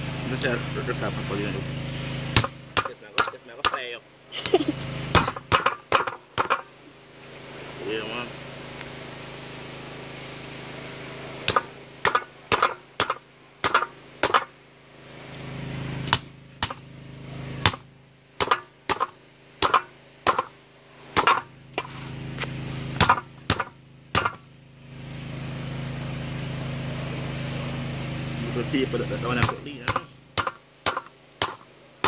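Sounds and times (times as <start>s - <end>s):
low steady hum: 0.0s - 32.0s
cleaver chopping on wooden board: 2.4s - 3.8s, 5.1s - 6.7s, 11.5s - 14.5s, 16.1s - 16.8s, 17.6s - 20.5s, 21.2s - 21.5s, 23.0s - 24.4s, 29.4s - 31.7s.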